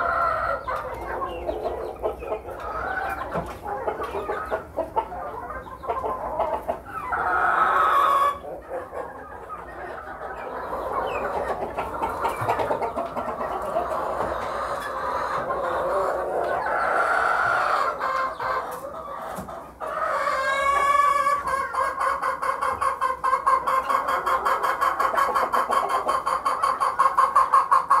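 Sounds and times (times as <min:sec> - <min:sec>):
chickens clucking: 0:00.0 - 0:28.0
drawn-out chicken call: 0:00.0 - 0:28.0.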